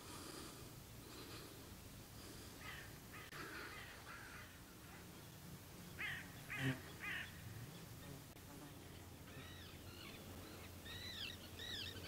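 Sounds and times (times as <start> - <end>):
crow cawing: 2.6 - 5.0, 6.0 - 7.4.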